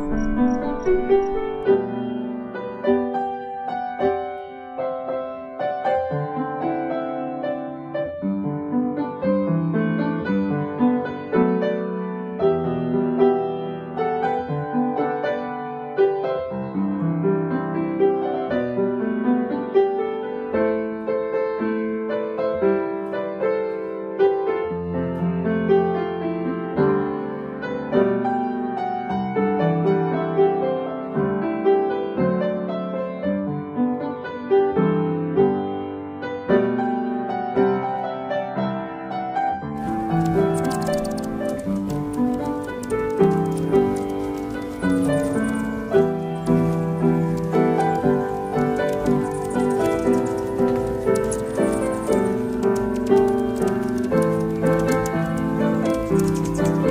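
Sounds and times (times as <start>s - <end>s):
background piano music: 0.0s - 56.9s.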